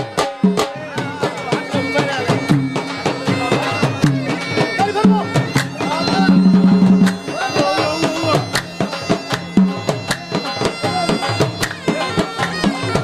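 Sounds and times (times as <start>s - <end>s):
drum strokes: 0.0s - 13.0s
folk melody on saz: 0.0s - 13.0s.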